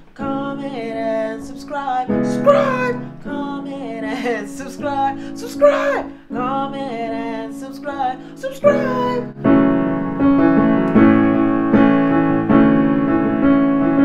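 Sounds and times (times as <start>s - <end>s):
woman singing: 0.1s - 9.3s
electronic keyboard chords: 8.4s - 14.0s.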